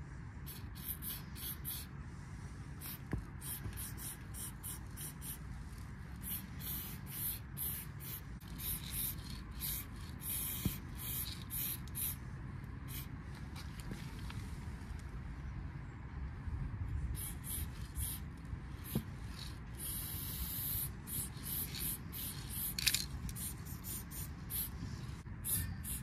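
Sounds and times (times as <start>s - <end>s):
low background rumble: 0.0s - 26.0s
spray paint can hissing: 0.4s - 1.9s, 2.8s - 5.4s, 6.2s - 12.2s, 12.9s - 13.1s, 17.2s - 18.2s, 18.8s - 26.0s.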